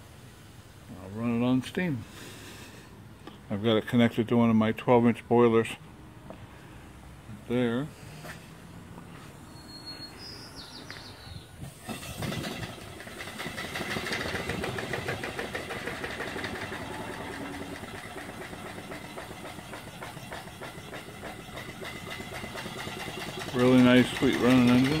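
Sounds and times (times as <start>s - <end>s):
steam engine exhaust chuffing: 11.6s - 25.0s.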